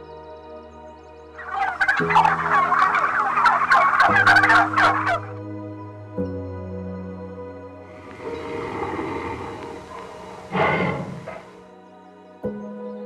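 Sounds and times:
soft background music: 0.0s - 13.0s
fowl gobbling chatter: 1.4s - 5.3s, 8.1s - 11.6s.

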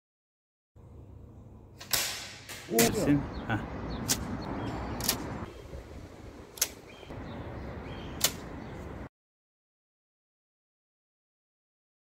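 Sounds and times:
outdoor background noise: 0.8s - 9.1s
paper airplane launcher snapping: 1.8s - 2.9s, 6.5s - 6.8s, 8.2s - 8.5s.

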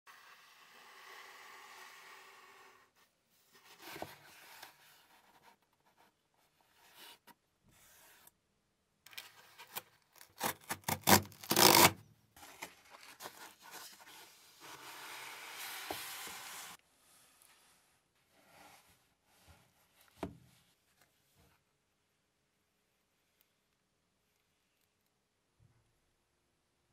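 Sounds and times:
envelope tearing open: 9.6s - 12.0s
cardboard rubbing and scraping: 10.3s - 16.8s
box sliding out: 13.3s - 16.8s.

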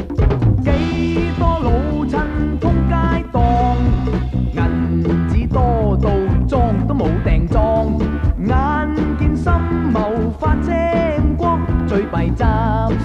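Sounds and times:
upbeat theme song with band: 0.0s - 13.0s.

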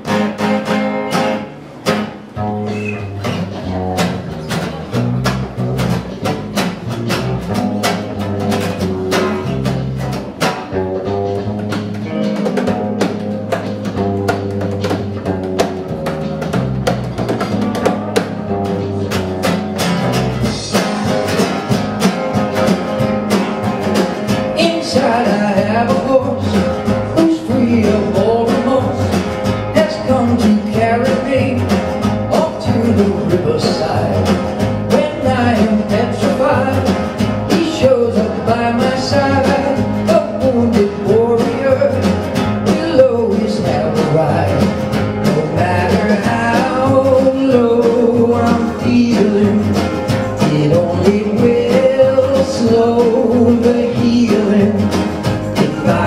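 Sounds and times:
acoustic guitar strumming: 0.0s - 56.0s
man singing: 20.1s - 21.6s, 24.4s - 56.0s.

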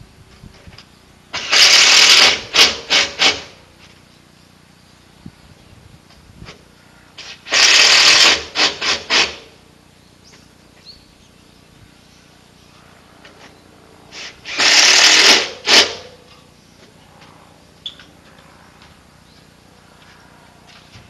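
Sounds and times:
power tool driving screws: 1.3s - 3.6s, 7.2s - 9.5s, 14.1s - 16.1s
power tool trigger blips: 14.5s - 16.0s.

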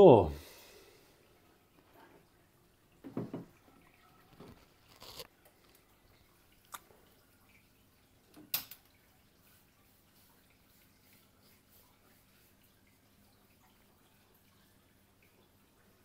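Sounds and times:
hose and tube knocks and clicks: 3.0s - 3.6s.

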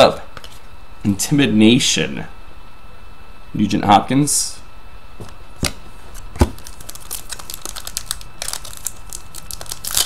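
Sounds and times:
foil wrapper crinkling: 6.4s - 10.0s.

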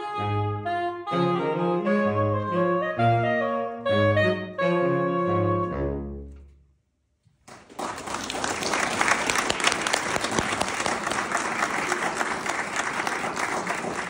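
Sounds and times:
audience applauding: 7.4s - 14.0s.

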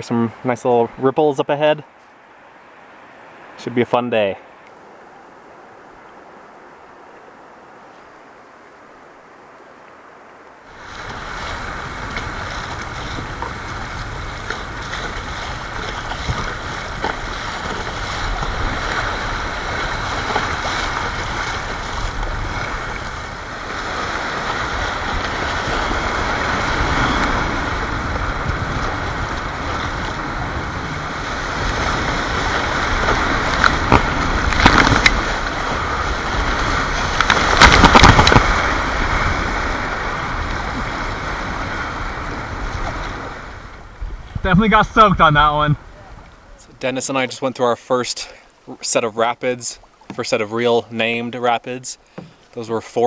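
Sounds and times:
rushing whitewater: 0.0s - 53.0s
waves splashing over boat: 10.6s - 53.0s.

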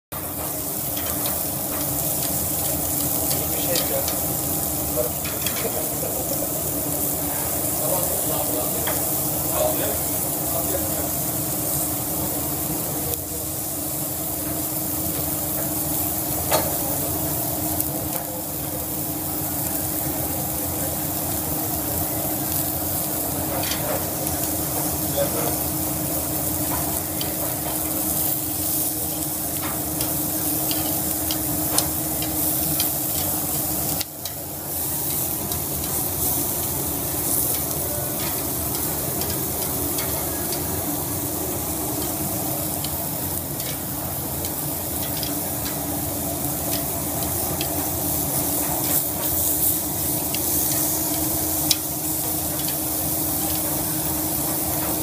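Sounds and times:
meat sizzling on grill: 0.1s - 55.0s.

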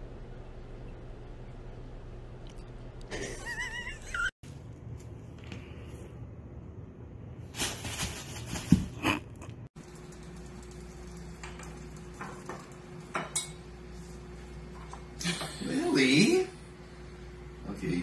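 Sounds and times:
plastic bag rustling: 7.4s - 9.0s.

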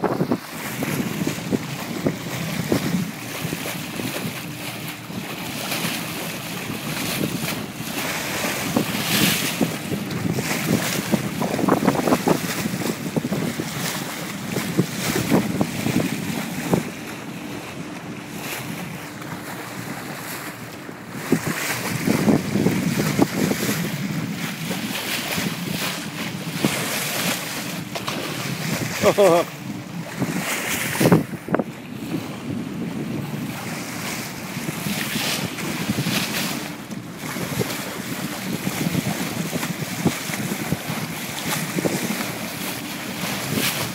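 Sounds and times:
water rushing and splashing: 0.0s - 43.9s
wind buffeting microphone: 0.0s - 43.9s
faint engine hum: 12.8s - 23.0s.

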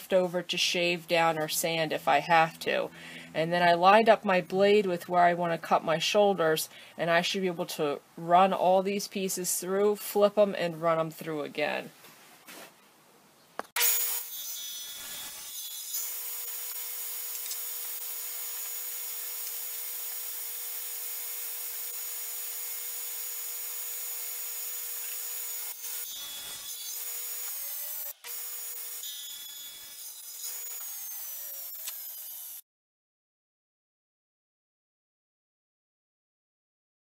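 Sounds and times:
table saw cutting wood: 13.8s - 32.6s.

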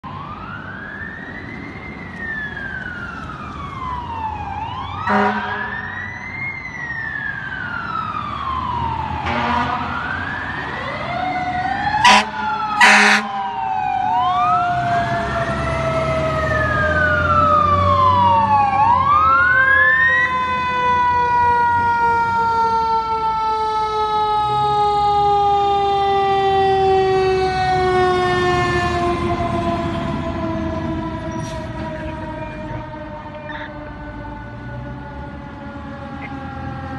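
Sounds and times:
fire engine sirens wailing: 0.0s - 36.9s
low rumble of truck engines: 0.0s - 36.9s
air horn blasts: 5.1s - 5.7s, 9.2s - 9.9s, 12.0s - 13.3s.

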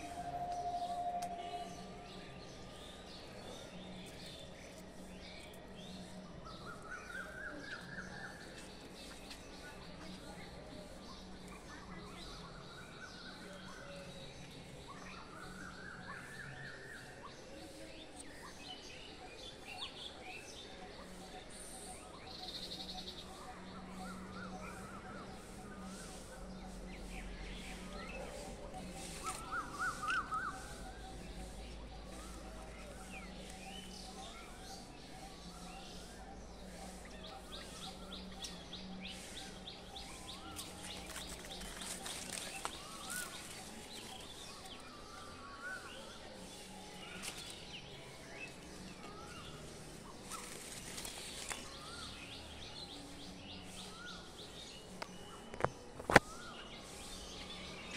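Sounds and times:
birds chirping: 19.5s - 57.9s.

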